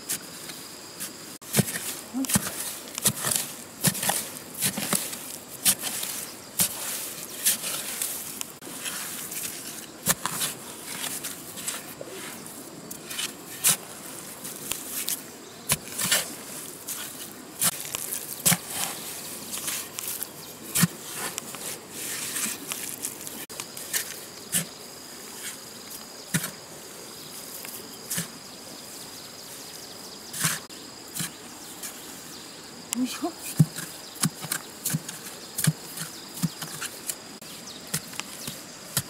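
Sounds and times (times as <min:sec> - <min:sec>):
high insect whine: 0:00.0 - 0:39.0
insects buzzing: 0:00.0 - 0:39.0
hoe chopping into earth: 0:01.5 - 0:06.8.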